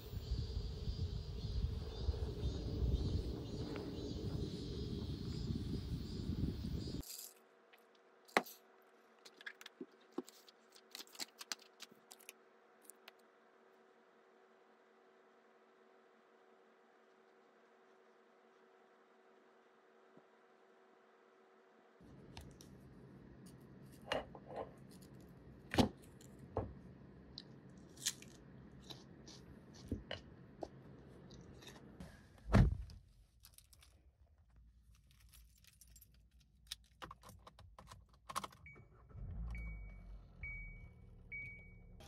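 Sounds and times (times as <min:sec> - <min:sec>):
low rumble: 0:00.0 - 0:07.0
car warning chime: 0:38.7 - 0:42.0.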